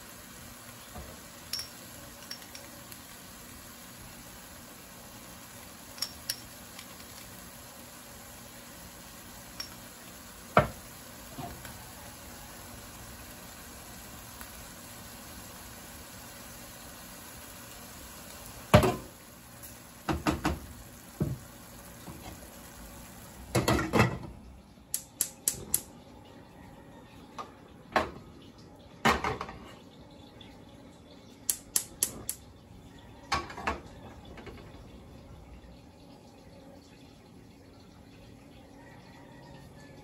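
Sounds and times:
steady gas hiss: 0:00.0 - 0:23.6.

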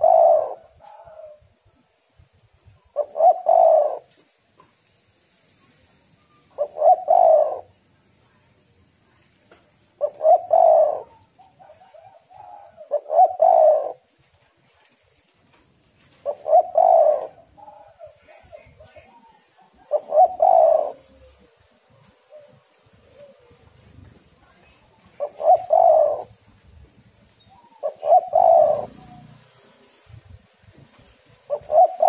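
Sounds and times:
dove cooing: 0:00.0 - 0:01.6, 0:02.8 - 0:04.2, 0:06.3 - 0:07.8, 0:10.0 - 0:14.2, 0:16.0 - 0:26.8, 0:27.4 - 0:30.0, 0:30.7 - 0:32.0.

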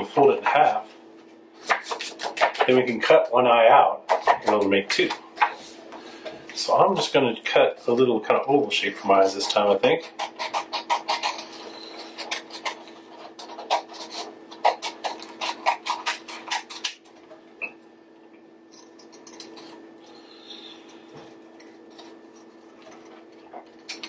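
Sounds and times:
scissors snipping paper: 0:10.0 - 0:17.0.

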